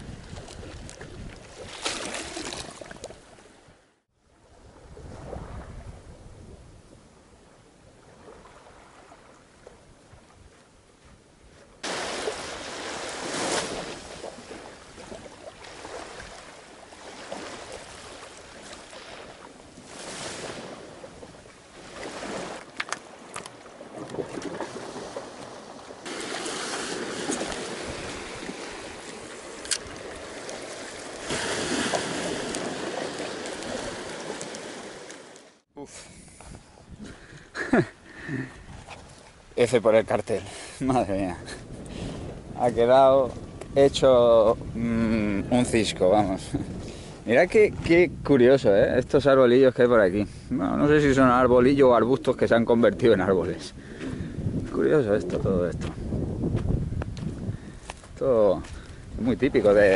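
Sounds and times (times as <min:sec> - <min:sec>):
wind on microphone: 0:00.0 - 0:03.1, 0:04.5 - 0:16.4, 0:23.8 - 0:35.0, 0:36.0 - 0:37.6, 0:41.0 - 0:49.4, 0:50.1 - 0:59.9
surf washing over rocks: 0:11.8 - 0:35.6.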